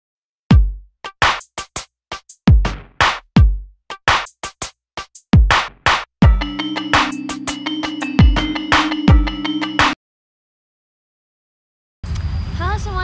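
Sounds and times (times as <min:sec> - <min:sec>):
deep kick drums: 0:00.5 - 0:00.8, 0:02.5 - 0:03.7, 0:05.4 - 0:06.5.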